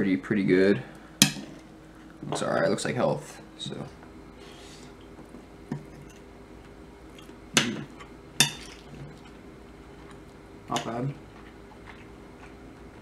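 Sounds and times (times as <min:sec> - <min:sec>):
fork clinking on dish: 0:08.4 - 0:08.8.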